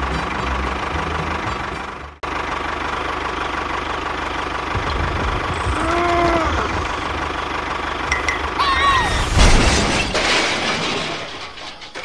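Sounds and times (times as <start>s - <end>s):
tractor engine chugging: 0.0s - 8.9s.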